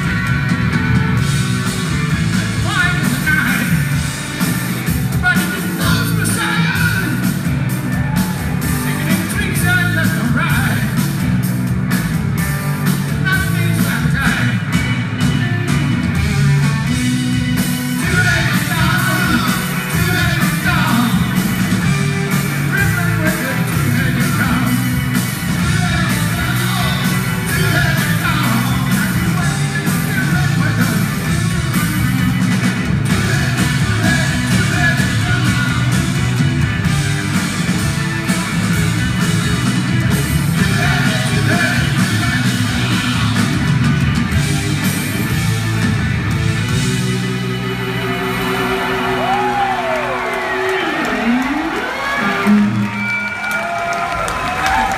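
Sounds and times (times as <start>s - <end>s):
drums: 0.0s - 54.9s
electric guitars: 0.0s - 54.9s
keyboard: 0.0s - 54.9s
lead vocal singing: 25.6s - 31.1s, 33.1s - 36.2s, 40.6s - 43.5s.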